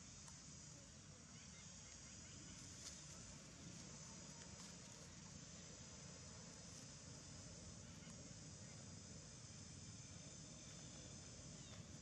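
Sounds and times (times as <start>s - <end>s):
high-pitched insect drone: 5.3s - 12.0s.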